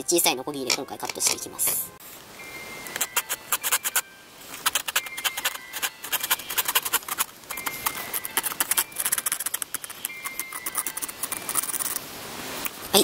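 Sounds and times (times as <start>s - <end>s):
hand saw cutting wood: 4.6s - 7.3s.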